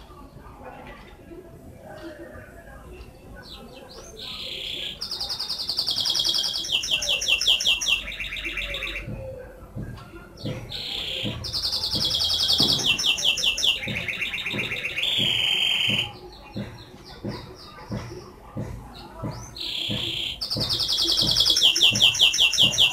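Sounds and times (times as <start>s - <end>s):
canary singing trills: 3.4s - 9.4s, 10.4s - 18.3s, 18.9s - 22.9s.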